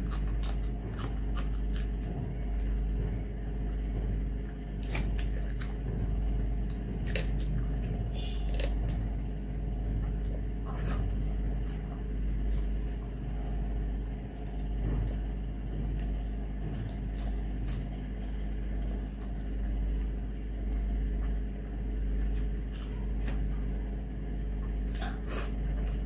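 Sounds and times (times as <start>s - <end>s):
low background rumble with hum: 0.0s - 26.0s.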